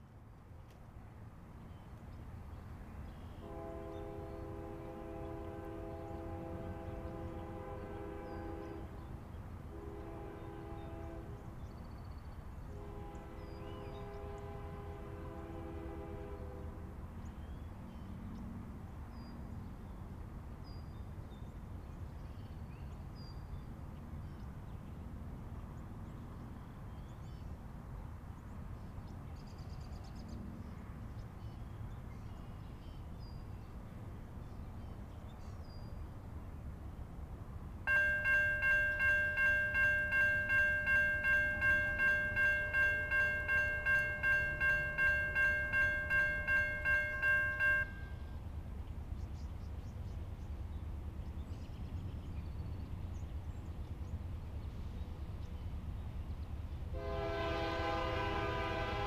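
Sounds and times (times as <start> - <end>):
railroad crossing bell ringing: 37.9 - 48.3.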